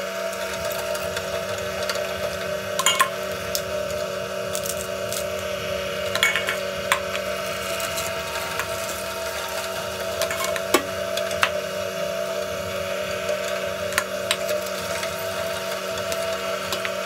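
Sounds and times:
meat grinder motor hum: 0.0 - 17.0.

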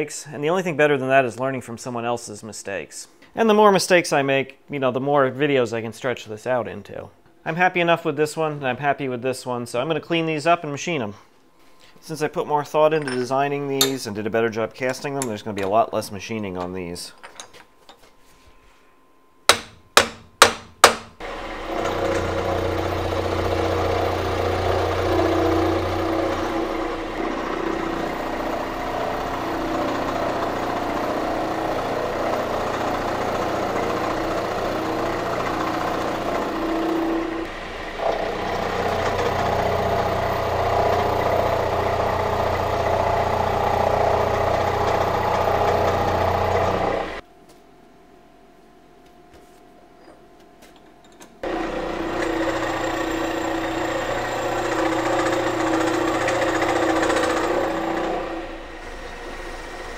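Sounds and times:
sharp knocks: 19.5 - 21.2
milling machine cutting metal: 21.2 - 47.2, 51.4 - 59.9.

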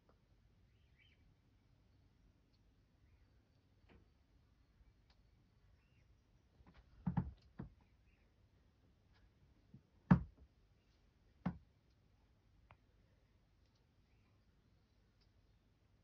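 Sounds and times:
sharp knocks and clicks: 6.7 - 7.8, 10.1 - 10.4.

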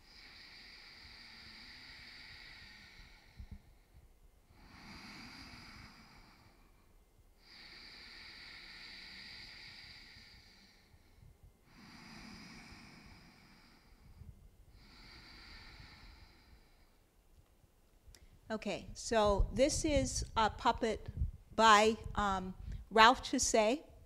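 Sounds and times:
slow deep breaths: 0.0 - 19.0, 22.5 - 23.0.

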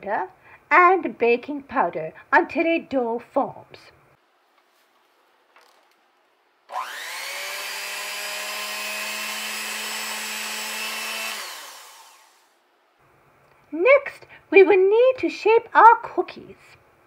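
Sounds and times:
electric mixer motor whining: 6.7 - 12.6.

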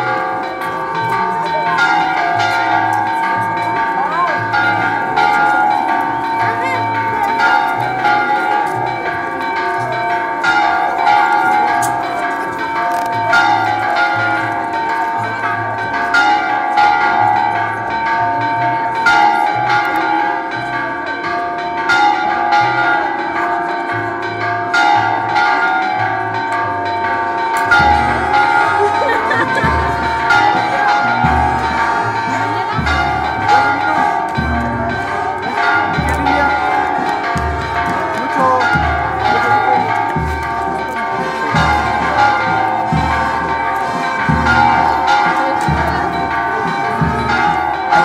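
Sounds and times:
church bells pealing: 0.0 - 48.0.

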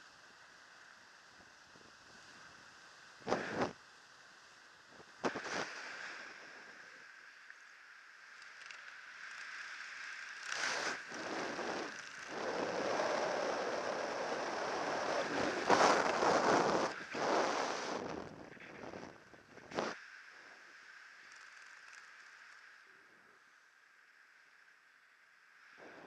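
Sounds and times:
wind rushing over microphone: 10.7 - 20.0.

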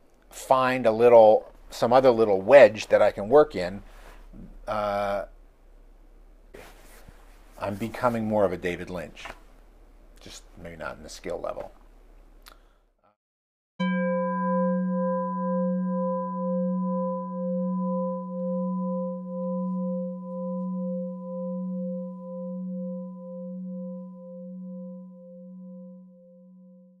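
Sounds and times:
bell-like metal tone ringing: 13.8 - 27.0.

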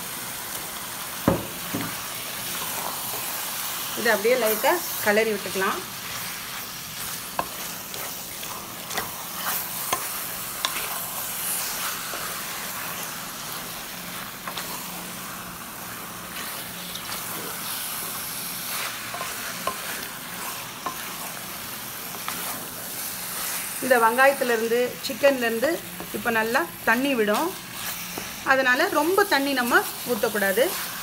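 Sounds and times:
chicken sizzling in oil: 0.0 - 31.0
spatula scraping pot: 6.0 - 13.1.

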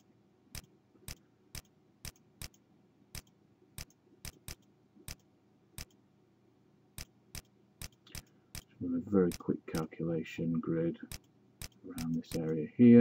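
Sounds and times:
computer mouse clicking: 0.5 - 6.0, 7.0 - 8.7, 11.1 - 12.6.

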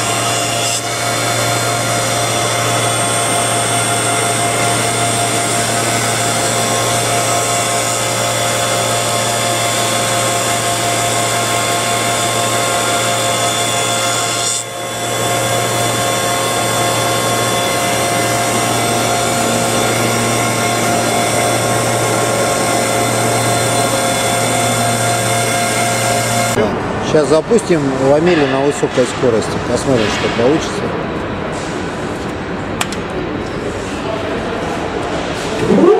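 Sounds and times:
milling machine motors whining: 0.0 - 28.2.

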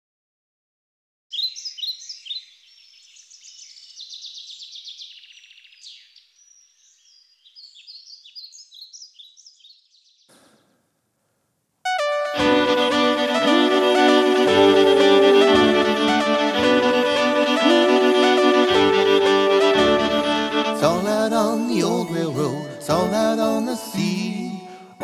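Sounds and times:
songbirds chirping and trilling: 1.3 - 10.4
fiddle playing: 11.9 - 25.0.

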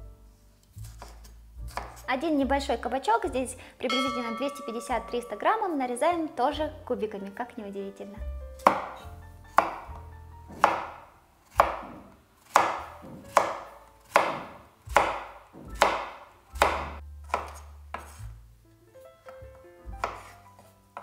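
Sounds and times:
knife chopping on wooden board: 0.8 - 2.0, 8.6 - 18.2, 19.9 - 20.4.

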